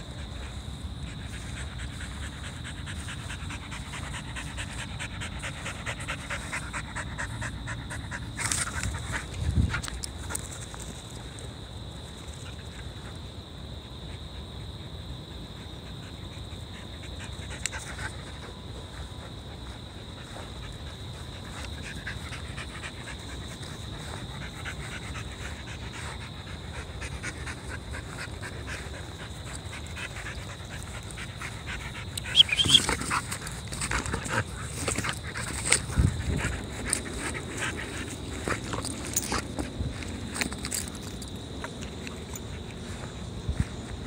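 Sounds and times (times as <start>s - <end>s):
dog panting: 0.1s - 9.8s, 15.6s - 40.5s.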